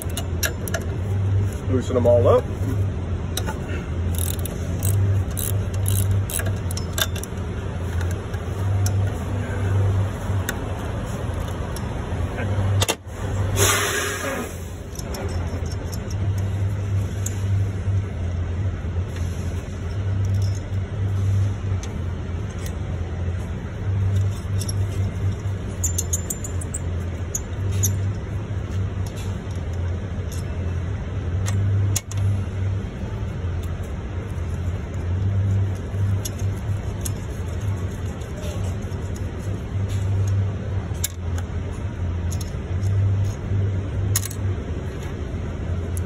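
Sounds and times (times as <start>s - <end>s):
ratchet metallic clicks: 0.0s - 1.0s, 3.4s - 9.2s, 14.8s - 17.6s, 19.8s - 21.0s, 21.7s - 30.7s, 31.4s - 45.2s
low engine hum: 0.0s - 46.0s.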